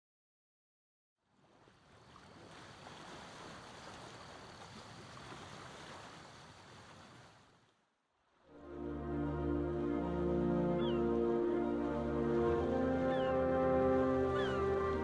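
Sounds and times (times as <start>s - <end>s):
sea surf washing: 8.4s - 15.0s.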